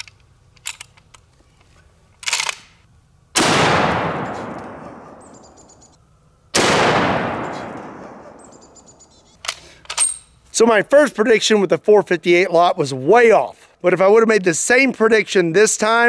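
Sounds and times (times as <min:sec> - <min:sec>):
rifle handling noise: 0:00.0 - 0:02.9, 0:09.4 - 0:10.5
rifle shots echoing: 0:03.4 - 0:05.8, 0:06.6 - 0:09.0.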